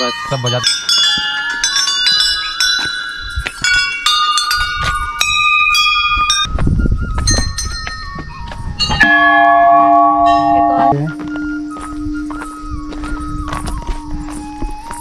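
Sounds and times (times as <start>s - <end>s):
metal bells clanging: 0.0s - 6.5s, 7.3s - 11.2s
large bell deep tone: 8.8s - 12.3s.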